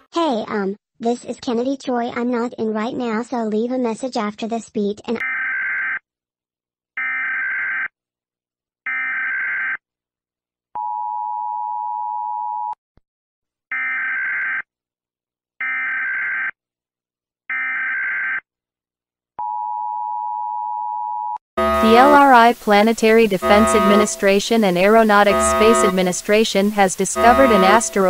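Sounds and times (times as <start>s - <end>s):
electronic alert beeps: 21.6s - 28.0s
lower steady tone: 21.6s - 28.0s.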